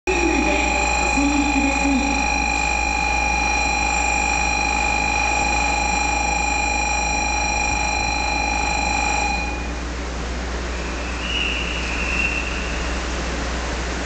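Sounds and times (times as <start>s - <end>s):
high electronic departure bell tone: 0.0s - 9.9s.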